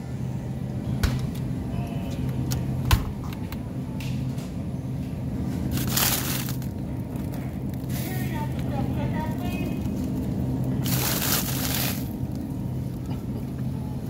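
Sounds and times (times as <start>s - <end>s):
steady low hum: 0.0s - 14.0s
plastic bag rustling and crunching: 5.7s - 8.0s, 9.2s - 12.4s.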